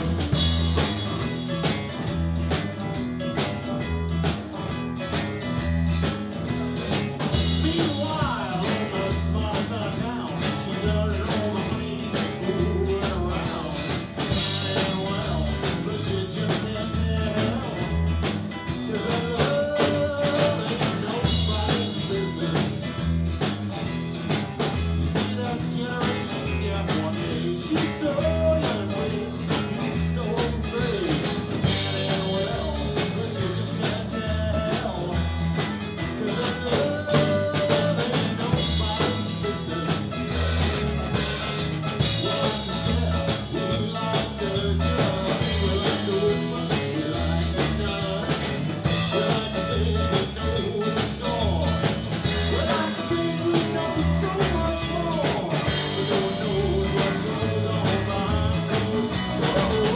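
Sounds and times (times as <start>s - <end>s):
drum kit: 0.0s - 59.9s
electric bass: 0.0s - 59.9s
electric guitar: 0.0s - 59.9s
man singing into microphone: 7.4s - 18.0s, 18.7s - 23.2s, 25.0s - 40.8s, 42.0s - 59.9s.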